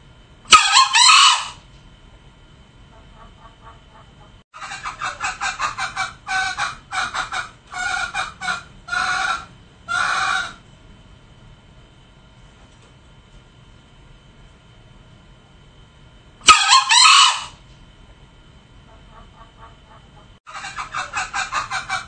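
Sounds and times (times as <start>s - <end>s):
junglefowl clucking: 0.5s - 1.6s, 2.9s - 10.6s, 16.4s - 17.6s, 18.9s - 22.0s
junglefowl crowing: 0.5s - 1.6s, 3.0s - 10.6s, 16.4s - 17.6s, 19.0s - 22.0s.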